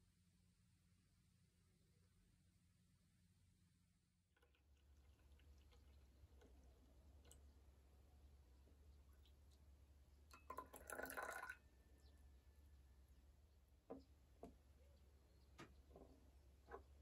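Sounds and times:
tea pouring into cup: 4.4 - 9.7, 10.3 - 11.6.

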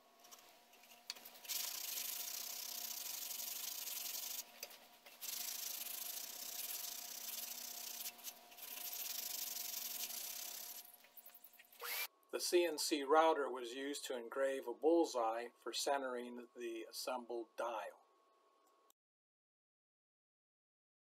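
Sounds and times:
sandpaper rubbing wood: 1.4 - 10.8.

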